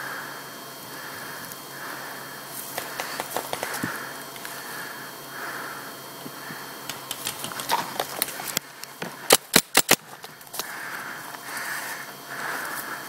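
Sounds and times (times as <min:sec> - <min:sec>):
heavy breathing: 0:00.0 - 0:07.1, 0:10.0 - 0:13.0
paintball marker shots: 0:02.8 - 0:03.8, 0:09.3 - 0:10.0.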